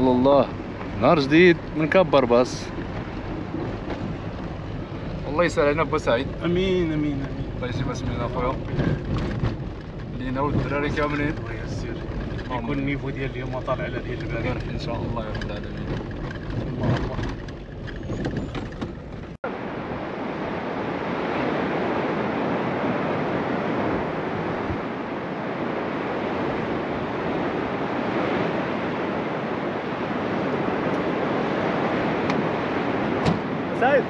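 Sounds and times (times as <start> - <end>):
surf washing on shore: 0.0 - 17.3, 19.4 - 34.0
low rumble: 0.0 - 20.4
wind on microphone: 0.0 - 34.0.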